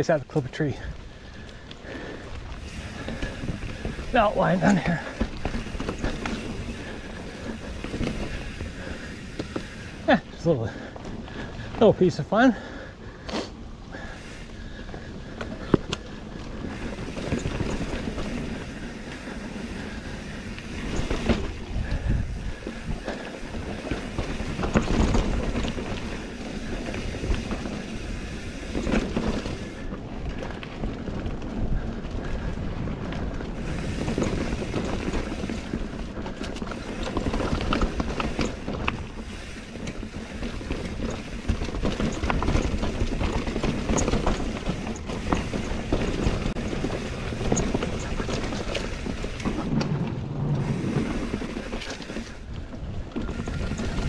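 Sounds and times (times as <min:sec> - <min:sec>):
bike tyres rolling over dirt: 0:00.0 - 0:54.0
wind rushing past microphone: 0:16.6 - 0:39.3.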